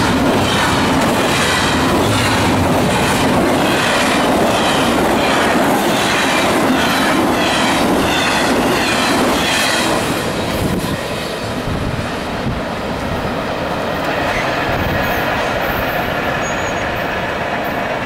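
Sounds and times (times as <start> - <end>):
steel wheels clattering on rails: 0.0 - 11.2
freight train rushing past: 0.0 - 18.0.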